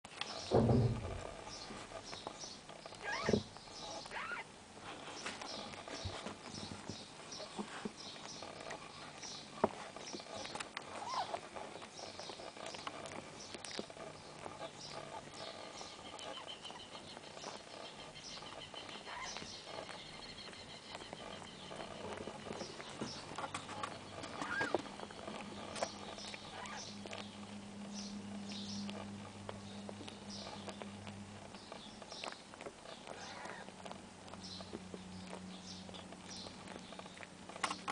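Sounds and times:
kitten mewing: 4.1 - 4.5.

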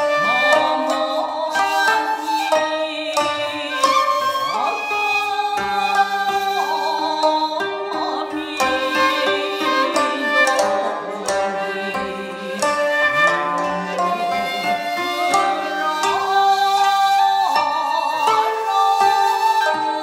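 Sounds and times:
wavering bamboo flute: 0.0 - 20.0
plucked string notes: 6.6 - 16.9.

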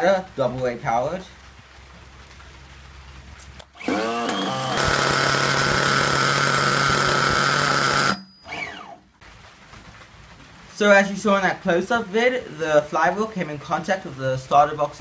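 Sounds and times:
electric starter whine: 3.6 - 9.0
rc car engine running: 3.8 - 8.8.

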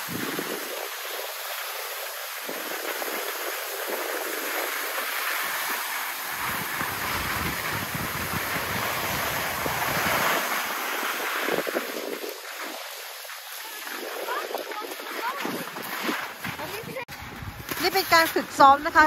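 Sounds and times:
skis scraping over snow: 0.0 - 19.0
wind on microphone: 0.0 - 19.0.

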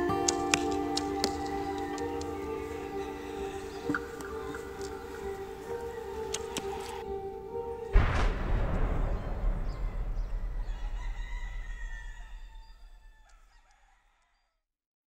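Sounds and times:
cinematic impact hit: 8.0 - 13.2.

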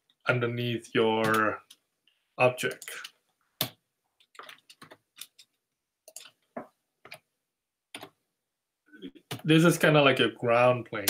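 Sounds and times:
keyboard and mouse clicks: 1.2 - 1.8, 2.6 - 7.3, 7.9 - 8.2, 9.2 - 9.5.

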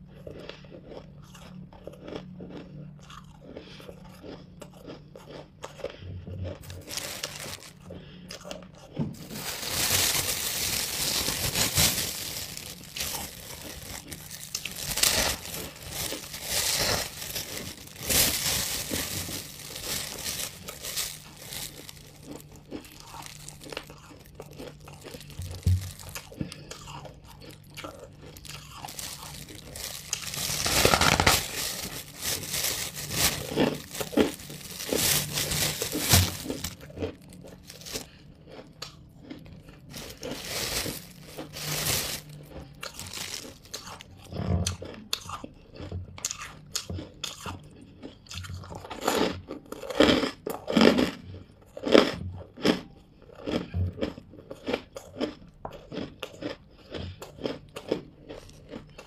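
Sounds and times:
crunchy food chewing: 0.0 - 59.0
plastic bag crinkling: 6.6 - 7.8, 9.1 - 38.2, 39.8 - 44.0.

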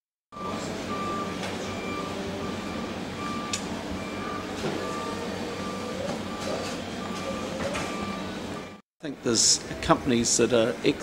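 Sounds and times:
reversing alarm beeping: 0.3 - 8.8.

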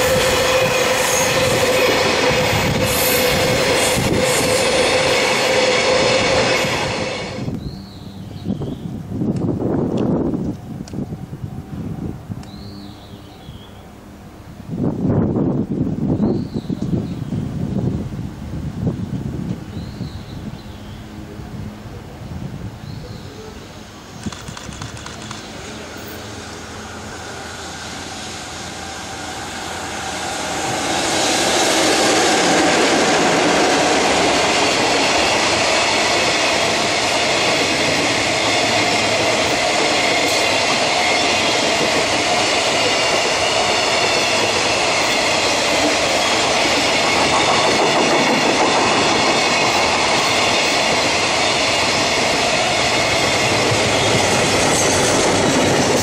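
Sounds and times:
electric locomotive passing: 0.0 - 56.0
train wheels rumbling on rails: 0.0 - 56.0.

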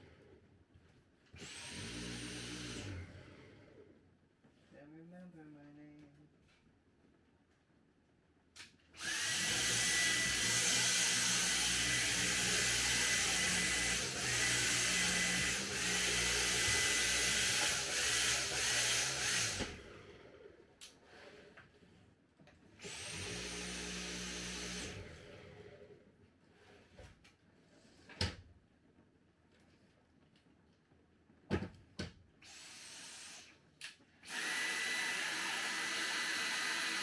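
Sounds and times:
vacuum cleaner motor whine: 1.4 - 3.6, 9.0 - 20.1, 22.8 - 25.8, 34.2 - 37.0.

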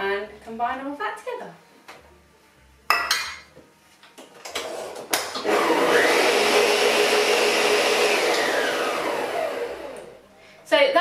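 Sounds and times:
stand mixer motor whine: 5.3 - 10.2.

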